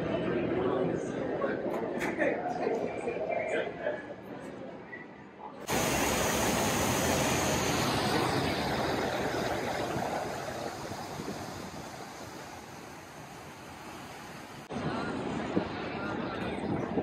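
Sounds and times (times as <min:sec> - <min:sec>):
fountain water splashing: 0:05.7 - 0:14.7.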